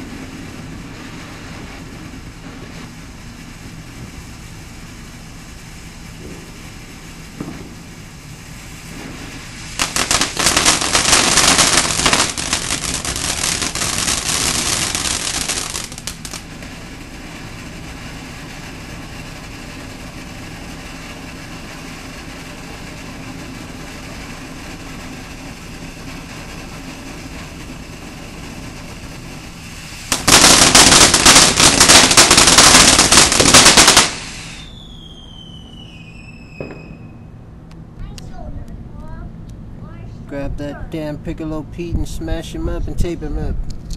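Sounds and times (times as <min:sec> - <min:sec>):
hiss of spraying sparks: 0:00.0 - 0:34.8
firework crackling popping: 0:00.0 - 0:39.0
falling whistling tones: 0:34.1 - 0:37.4.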